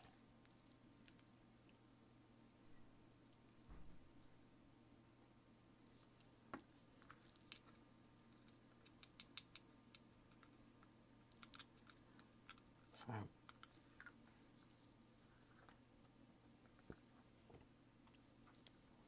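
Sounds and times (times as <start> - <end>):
faint clicks and taps: 5.9 - 12.7, 13.4 - 18.9.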